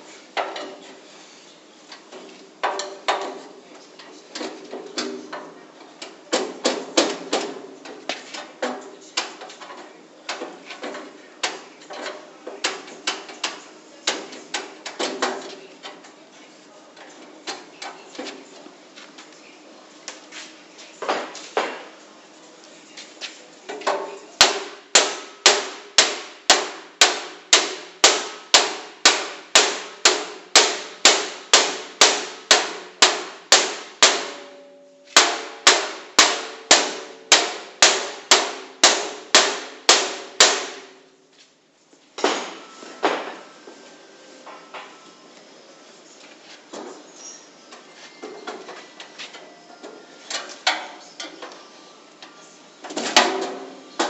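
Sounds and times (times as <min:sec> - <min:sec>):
hammer striking metal locker: 0:23.8 - 0:41.0, 0:42.2 - 0:43.6, 0:50.3 - 0:51.5, 0:52.9 - 0:54.0.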